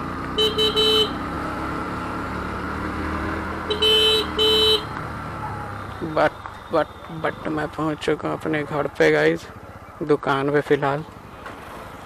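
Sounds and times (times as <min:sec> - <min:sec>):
horn beeps: 0:00.4 - 0:01.2, 0:03.6 - 0:05.0.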